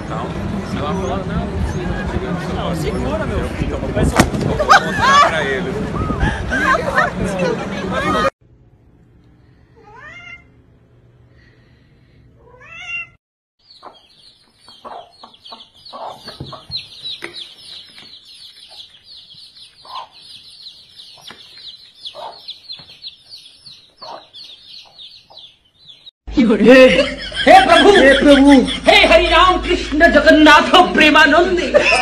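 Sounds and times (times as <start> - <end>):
cat meowing: 9.8 - 10.5, 12.4 - 13.2
hen clucking: 13.6 - 26.0
chicks peeping: 13.6 - 26.1.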